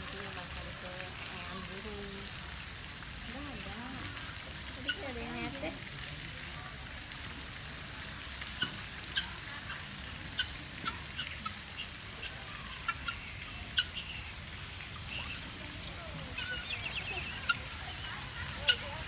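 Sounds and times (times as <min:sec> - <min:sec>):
guineafowl calling: 0:04.8 - 0:05.5, 0:08.6 - 0:19.0.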